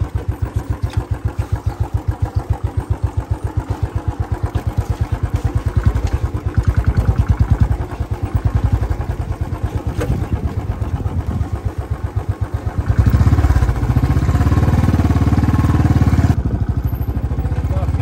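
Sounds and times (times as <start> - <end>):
motorcycle engine running: 0.0 - 18.0.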